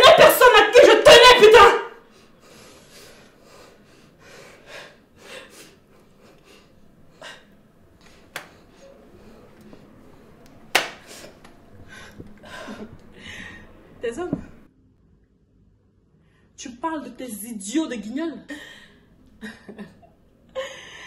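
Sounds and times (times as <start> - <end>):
person breathing heavily: 2.0 - 10.4, 11.0 - 14.0, 20.6 - 21.0.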